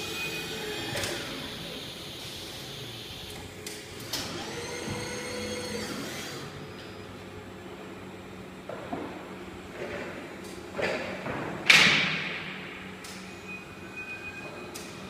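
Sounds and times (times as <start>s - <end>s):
electric motors whining: 0.0s - 6.9s.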